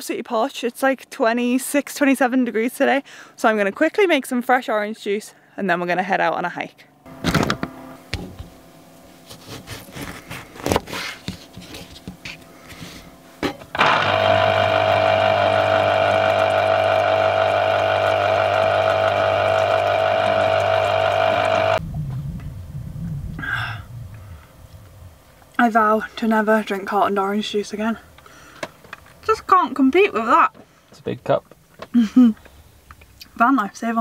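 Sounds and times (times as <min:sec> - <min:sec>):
electric juicer motor running: 0:13.7 - 0:21.8.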